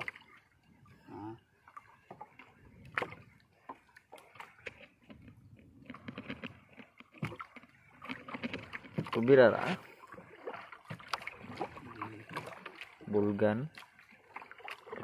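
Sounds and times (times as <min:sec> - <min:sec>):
water lapping against hull: 0:00.0 - 0:15.0
fishing gear clicks and knocks: 0:04.2 - 0:09.3.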